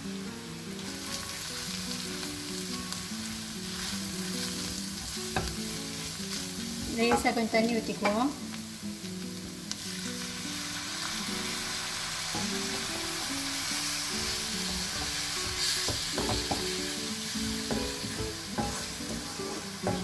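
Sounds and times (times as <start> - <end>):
masala sizzling in a pan: 0.0 - 20.0
soft background music: 0.0 - 20.0
water poured into hot pan: 9.8 - 16.2.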